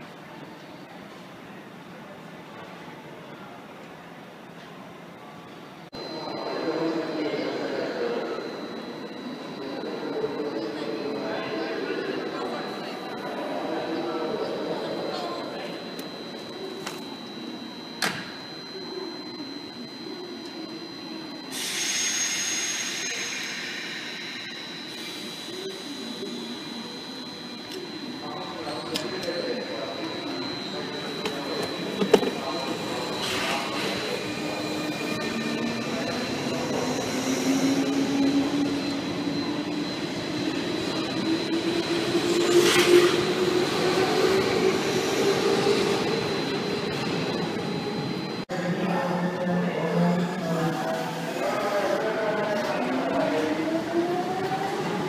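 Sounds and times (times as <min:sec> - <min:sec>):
electric train humming: 0:05.8 - 0:55.0
air hissing: 0:21.5 - 0:25.4.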